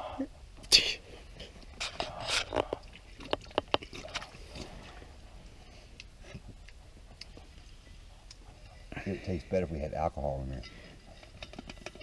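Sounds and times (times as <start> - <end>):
water sloshing: 1.3 - 9.3.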